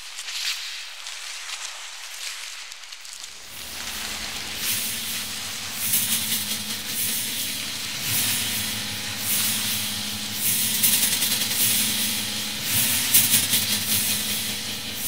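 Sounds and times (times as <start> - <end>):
low steady hum: 3.5 - 15.0
pulsing hissing rushing noise: 3.5 - 15.0.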